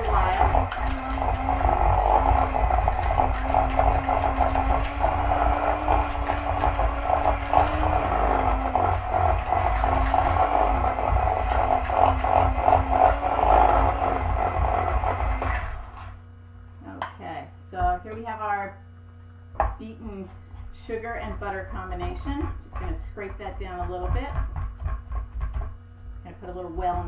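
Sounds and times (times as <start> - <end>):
electric hand mixer motor whine: 0.0 - 16.3.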